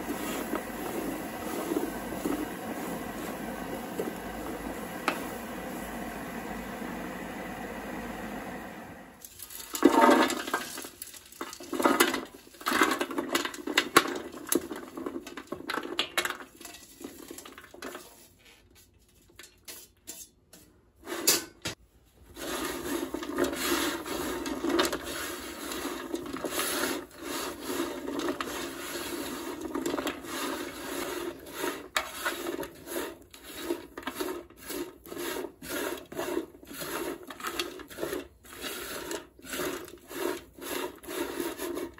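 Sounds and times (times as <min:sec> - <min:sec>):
wooden spoon stirring dry roots: 0:00.0 - 0:19.1, 0:22.2 - 0:41.9.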